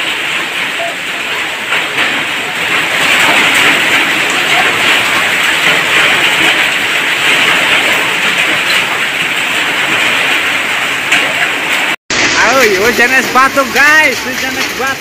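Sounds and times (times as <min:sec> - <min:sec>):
heavy rain and hail on road: 0:00.0 - 0:15.0.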